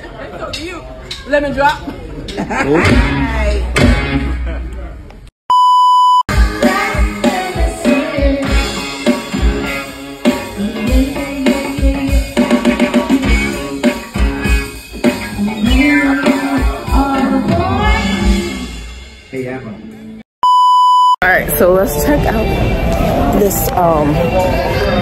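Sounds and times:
live band playing: 2.7s - 4.5s, 6.3s - 20.1s, 21.4s - 25.0s
short steady beep: 5.5s - 6.2s, 20.4s - 21.2s.

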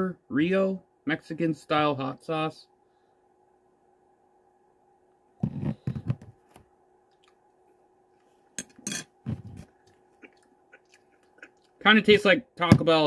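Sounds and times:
heavy thump: 12.7s - 13.0s.

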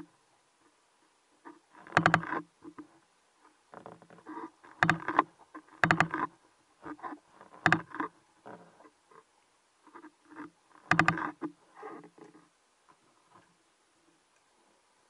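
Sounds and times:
underwater gear clicks: 4.7s - 6.3s, 10.4s - 11.6s.

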